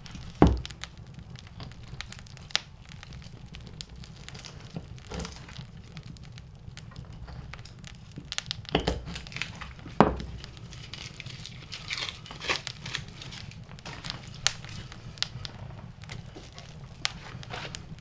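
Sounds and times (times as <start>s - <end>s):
fire crackling and popping: 0.0s - 18.0s
dry bark rustling: 9.1s - 18.0s.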